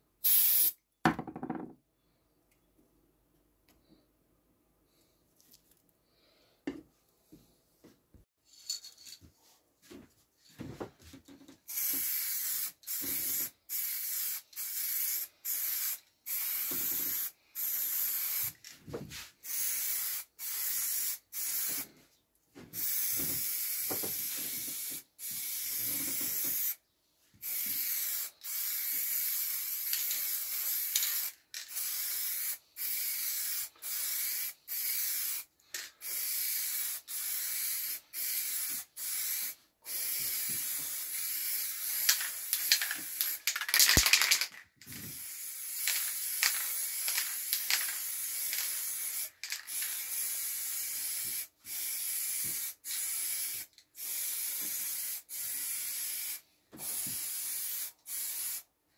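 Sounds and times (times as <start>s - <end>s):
spray paint can hissing: 0.2s - 0.8s, 11.7s - 18.6s, 19.4s - 21.9s, 22.8s - 26.8s, 27.4s - 58.7s.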